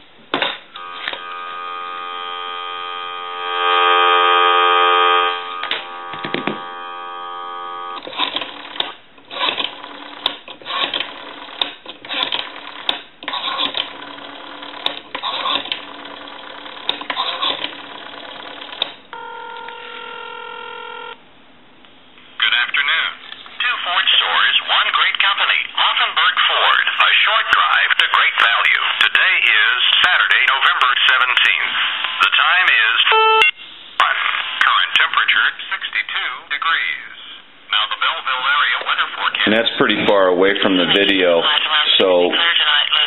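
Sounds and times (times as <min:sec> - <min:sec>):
steady tone: 0:00.8 - 0:08.0
telephone dial tone: 0:00.8 - 0:08.7, 0:13.4 - 0:21.2
recorded voice announcement: 0:22.4 - 0:33.3, 0:34.0 - 0:43.0.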